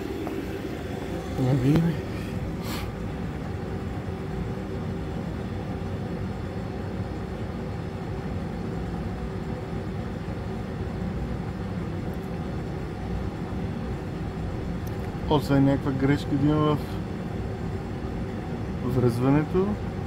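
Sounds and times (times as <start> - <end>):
car engine idling: 0.0 - 4.7.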